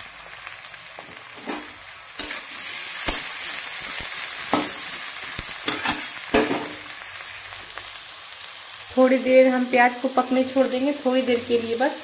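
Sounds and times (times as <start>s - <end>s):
onions sizzling in hot oil: 0.0s - 12.0s
spatula scraping metal pan: 1.4s - 3.4s, 5.7s - 6.8s.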